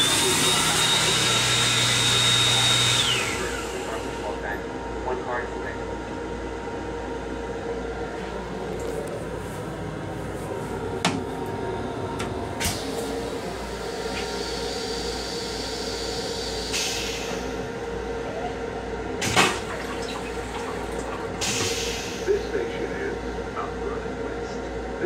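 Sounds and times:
railcar steady hum: 0.0s - 25.0s
rinse water hissing into toilet: 19.2s - 22.2s.

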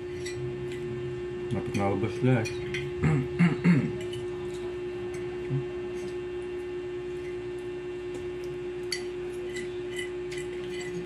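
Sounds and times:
steady hum: 0.0s - 11.0s
forks clinking on ceramic plates: 0.1s - 0.9s, 1.6s - 3.0s, 3.9s - 6.2s, 8.4s - 11.0s.

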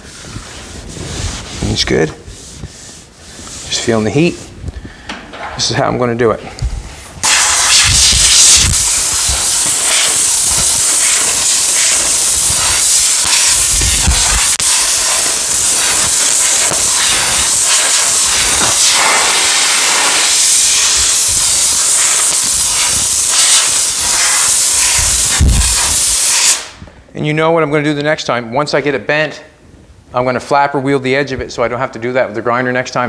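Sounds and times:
air blow gun hissing: 7.2s - 26.8s.

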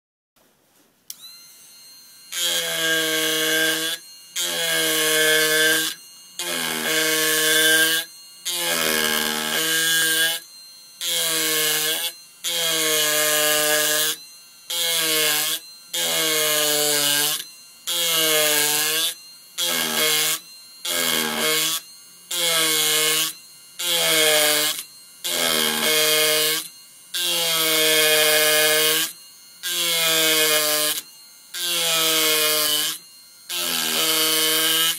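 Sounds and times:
wood-carving machine buzzing: 1.1s - 34.9s.

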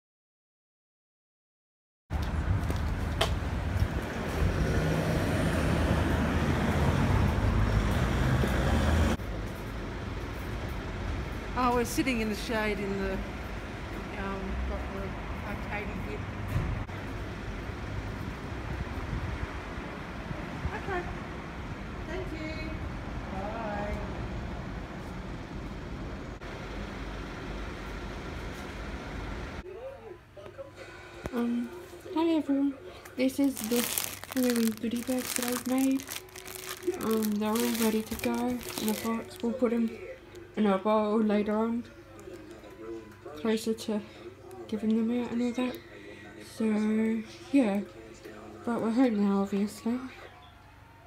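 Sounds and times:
road traffic rumble: 2.1s - 29.6s, 32.7s - 40.9s.

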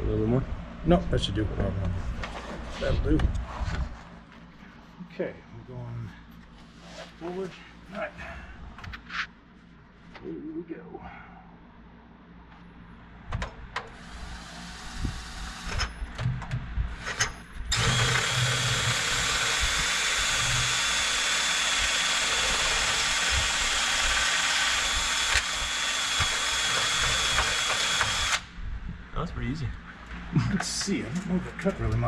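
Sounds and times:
power drill whining: 17.7s - 28.5s
knocks of drill bit: 24.2s - 28.4s.

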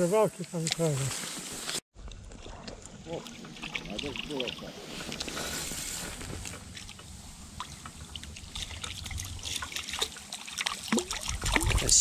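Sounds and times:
water trickling and lapping: 0.0s - 12.0s
small ticks and splashes: 2.0s - 5.6s, 6.4s - 12.0s
low rumble: 2.0s - 10.1s.

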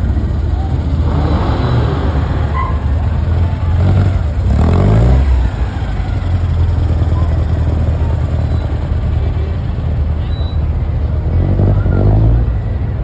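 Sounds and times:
engine revving: 0.0s - 7.8s
car engines rumbling past: 0.0s - 13.0s.

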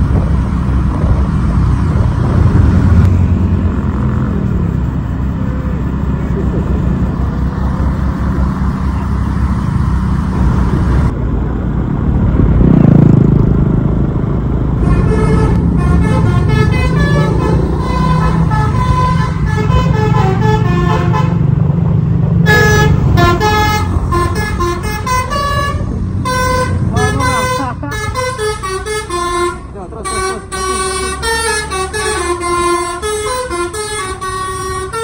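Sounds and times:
bus engine rumble: 0.0s - 35.0s
multi-tone horn tune: 14.8s - 21.5s, 22.4s - 35.0s.

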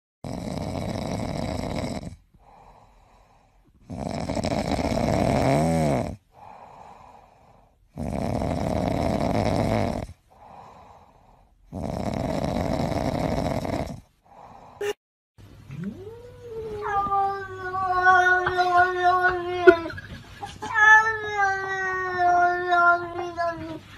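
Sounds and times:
cat snoring: 0.2s - 14.6s
cat breathing: 2.4s - 3.8s, 6.3s - 7.9s, 10.3s - 11.7s.

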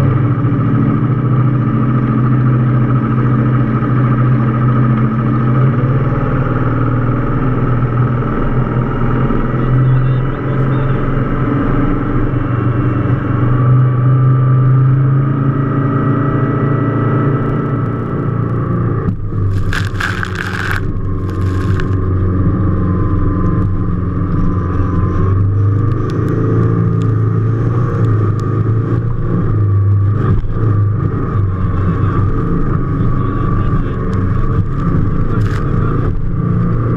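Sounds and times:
powerboat engine drone: 0.0s - 36.9s
rushing noise bursts: 19.2s - 22.5s.

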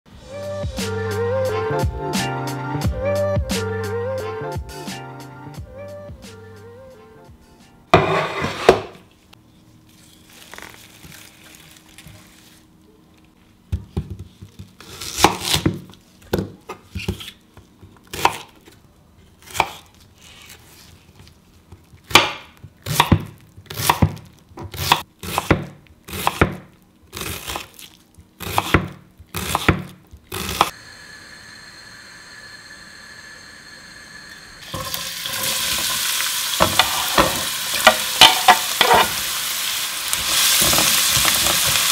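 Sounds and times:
knife chopping on wooden board: 22.1s - 26.6s, 28.4s - 30.7s
steady hum: 30.7s - 40.3s
oil sizzling in a frying pan: 34.6s - 41.9s.

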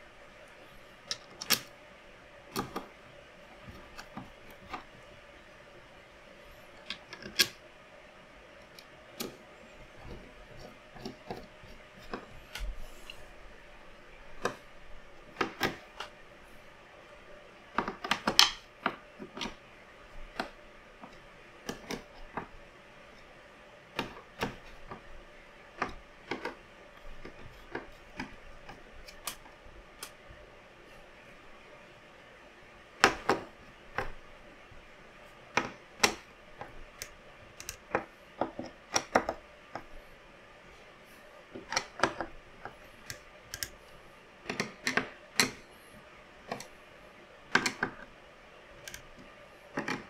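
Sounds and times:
faint steady hum: 0.0s - 50.0s
computer parts clicking: 36.9s - 39.3s, 41.6s - 43.8s.

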